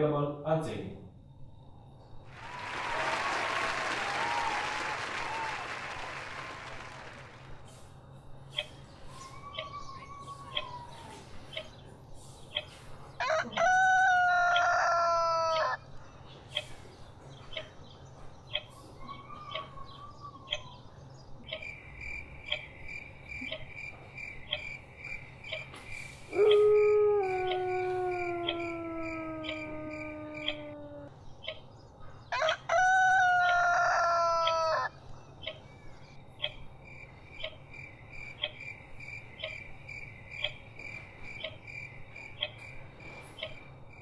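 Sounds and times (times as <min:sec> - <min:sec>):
long howl-like cry: 0:02.4 - 0:07.2, 0:13.2 - 0:15.8, 0:26.3 - 0:31.2, 0:32.5 - 0:34.9.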